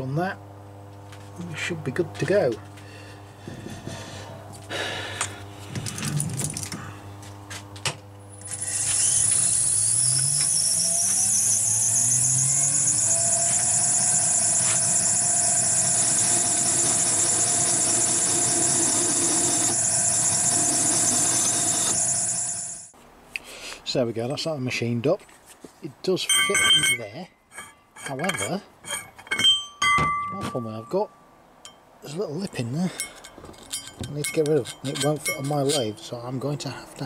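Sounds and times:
lathe motor whining: 8.3 - 22.9.

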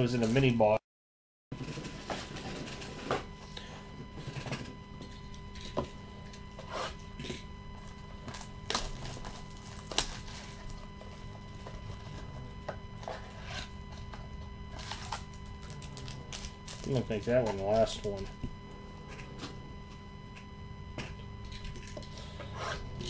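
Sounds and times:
faint steady hum: 1.6 - 23.0
cardboard and foil wrapper crinkling: 7.8 - 12.4, 13.0 - 18.3.

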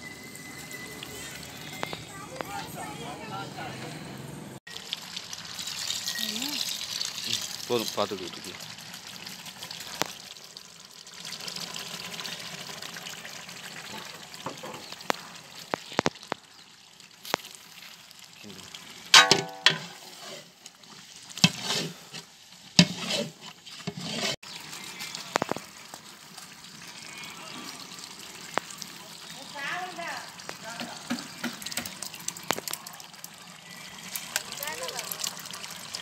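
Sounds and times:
food sizzling and bubbling in pot: 0.0 - 3.0, 4.6 - 36.0
metal ladle knocking against pot: 19.2 - 20.0.

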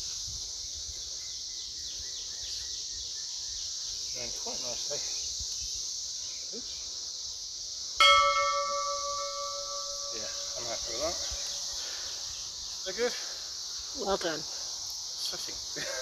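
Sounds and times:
insects trilling: 0.0 - 16.0
bell-like chime: 8.0 - 11.6.

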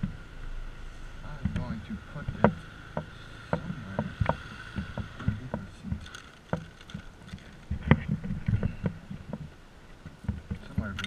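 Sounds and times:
handling knocks and clicks: 2.3 - 11.0.

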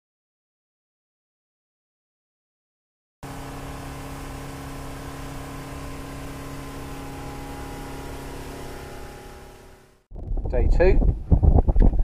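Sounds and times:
motorboat engine drone: 3.2 - 10.1.

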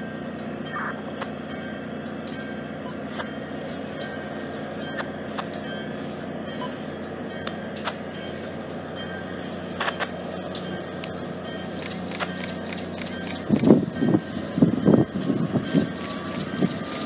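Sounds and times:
diesel locomotive drone: 0.0 - 17.0
sharp clicks: 11.8 - 13.8.

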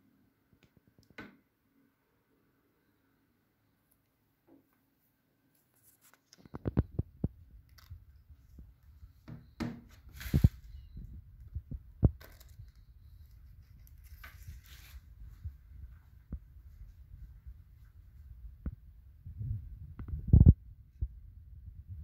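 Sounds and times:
paper crinkling and rustling: 9.9 - 10.8, 12.2 - 15.1.

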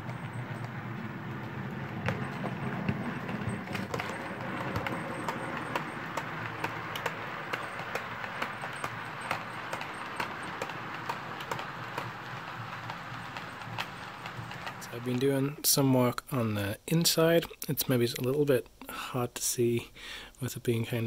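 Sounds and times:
wheels clicking over rail joints: 0.0 - 15.5
model train running hum: 0.0 - 16.2.

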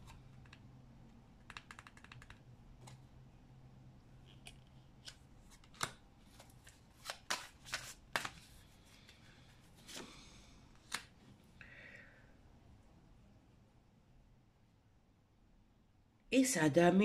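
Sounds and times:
soft rustling of cards: 0.0 - 3.5, 4.1 - 11.6
cards snapping and tapping: 7.0 - 8.4, 10.8 - 11.1.

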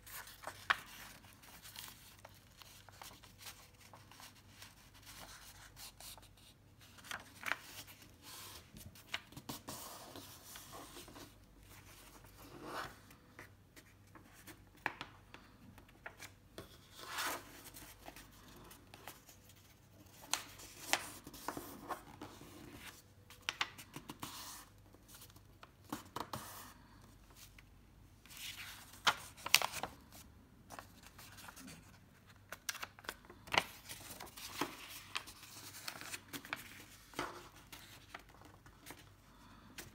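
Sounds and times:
paper crackling: 0.0 - 10.7, 28.3 - 30.1
paper rustling as folded: 0.0 - 13.2, 13.8 - 26.7, 28.2 - 39.2.

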